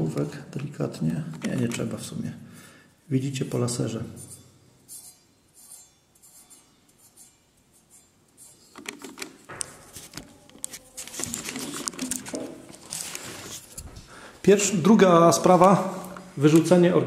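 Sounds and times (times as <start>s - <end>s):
rustling and light clattering: 5.6s - 14.1s.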